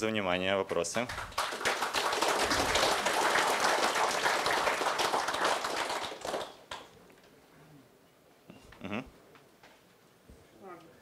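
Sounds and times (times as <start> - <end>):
audience applauding: 1.0 - 6.9.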